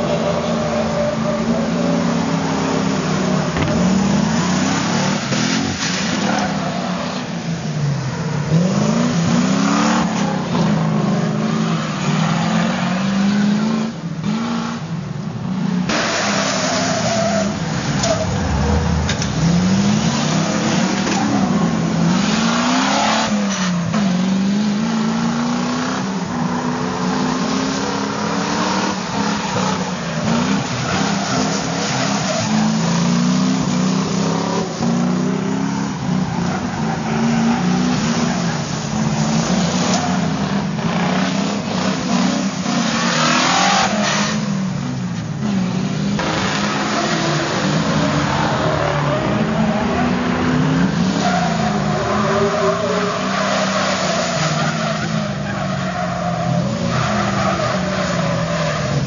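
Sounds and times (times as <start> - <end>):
tyres squealing on tarmac: 0.0 - 7.5, 16.0 - 19.0, 28.4 - 33.8, 48.2 - 59.0
truck engines revving: 0.0 - 59.0.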